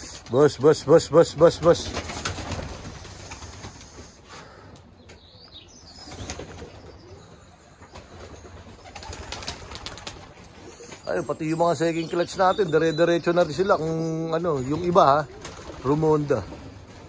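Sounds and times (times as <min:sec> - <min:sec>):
pigeon wings flapping: 0:01.3 - 0:04.1, 0:07.9 - 0:11.0, 0:15.3 - 0:17.0.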